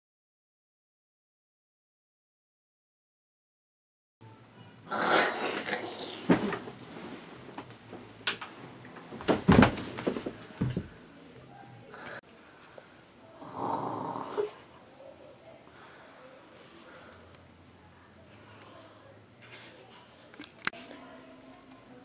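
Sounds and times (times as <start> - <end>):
person snoring: 4.9 - 6.2, 13.4 - 14.6
bedding rustling: 6.0 - 11.0.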